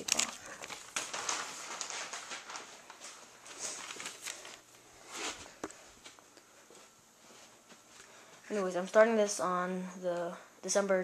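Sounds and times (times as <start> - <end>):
paper rustling: 0.0 - 5.7.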